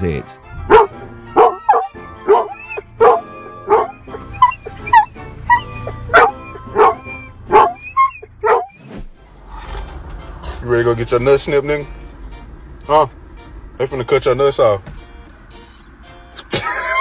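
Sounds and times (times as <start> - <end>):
car rumble: 0.4 - 17.0
dog barking: 0.7 - 8.8
dog yelping: 0.7 - 8.9.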